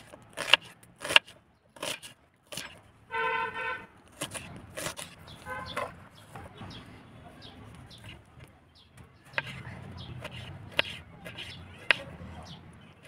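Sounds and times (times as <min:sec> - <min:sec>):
knife slicing tomatoes: 0:00.0 - 0:02.8, 0:04.1 - 0:08.5, 0:09.2 - 0:12.4.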